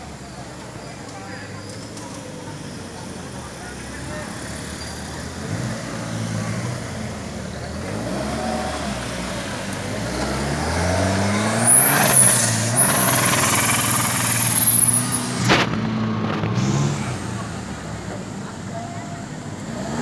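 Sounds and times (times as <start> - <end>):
buggy engine revving past: 7.7 - 17.5.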